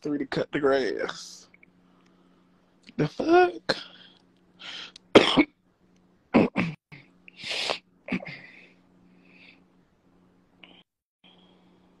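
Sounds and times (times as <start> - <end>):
low steady hum: 0.0 - 12.0
person coughing: 5.1 - 5.5, 6.3 - 6.8.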